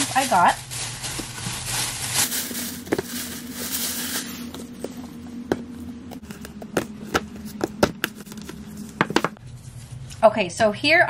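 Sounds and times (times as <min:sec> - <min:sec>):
plastic bag rustling: 0:00.0 - 0:05.5
faint steady hum: 0:00.4 - 0:11.0
books knocking on countertop: 0:05.5 - 0:09.4.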